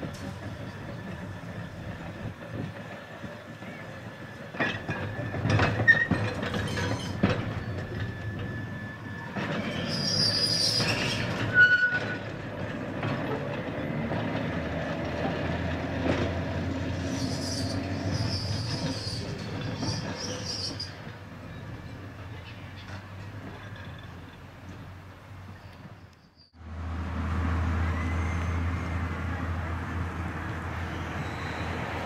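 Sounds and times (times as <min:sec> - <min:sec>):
tram wheels clicking over joints: 0:00.0 - 0:26.2
wheel flanges squealing: 0:00.0 - 0:26.6, 0:27.6 - 0:32.0.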